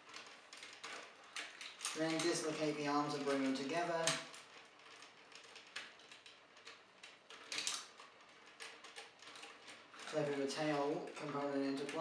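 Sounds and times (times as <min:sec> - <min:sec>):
plastic toy clicks: 0:00.1 - 0:12.0.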